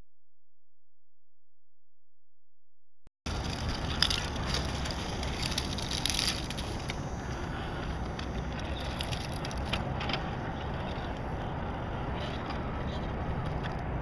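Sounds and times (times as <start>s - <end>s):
tyres crunching on rock: 3.3s - 10.4s.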